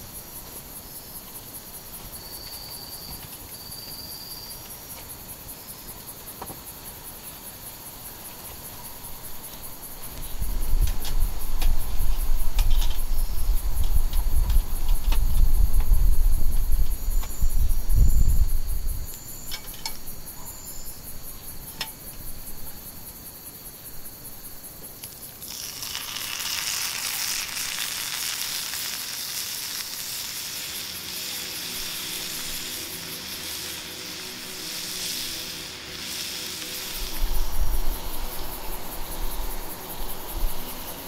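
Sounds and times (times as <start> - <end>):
faint insects chirping: 0.0 - 41.0
wood fire crackling: 25.0 - 39.8
meat sizzling in a skillet: 25.4 - 39.6.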